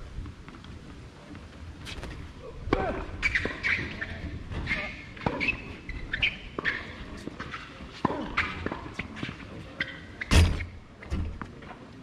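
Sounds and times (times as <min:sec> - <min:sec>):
footsteps on tennis court: 0:00.0 - 0:02.3, 0:03.2 - 0:10.3.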